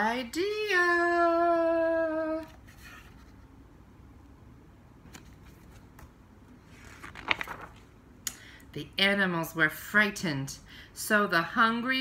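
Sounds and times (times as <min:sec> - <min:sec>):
book pages turning: 0:05.1 - 0:08.0.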